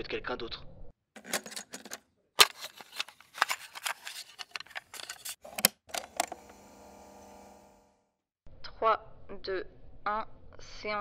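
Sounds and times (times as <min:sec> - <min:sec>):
cassette player clicks and rattles: 0:01.2 - 0:07.4.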